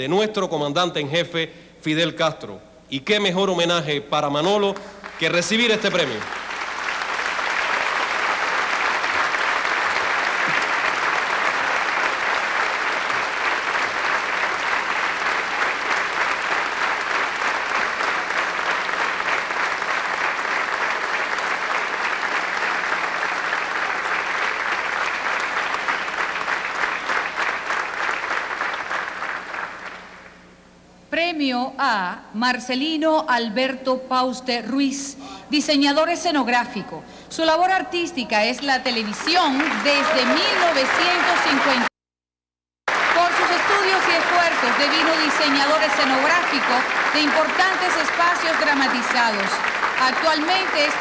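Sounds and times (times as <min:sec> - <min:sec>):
audience applauding: 0:04.9 - 0:30.3, 0:38.8 - 0:42.0, 0:42.9 - 0:51.0.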